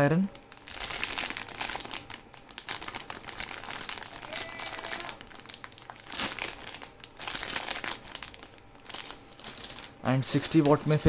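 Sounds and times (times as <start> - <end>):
plastic bag crinkling: 0.4 - 11.0.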